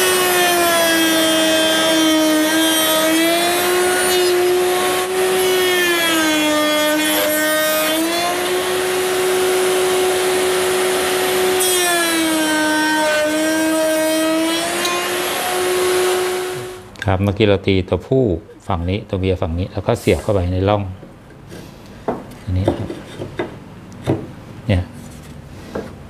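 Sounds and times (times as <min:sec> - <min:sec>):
wood router whining: 0:00.0 - 0:17.0.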